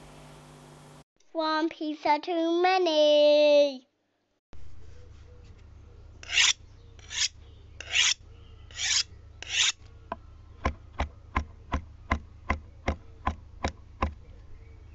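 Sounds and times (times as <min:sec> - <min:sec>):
short rasping strokes: 0:06.2 - 0:09.8.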